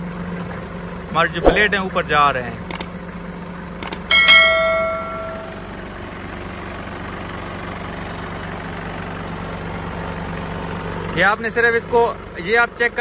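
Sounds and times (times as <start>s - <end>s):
forklift engine idling: 3.8s - 11.1s
metallic clang: 4.1s - 5.7s.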